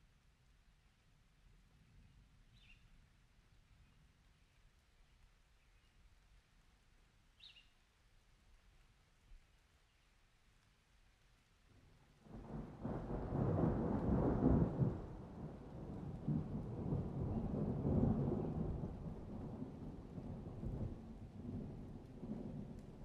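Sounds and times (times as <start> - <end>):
rolling thunder: 12.2 - 23.0.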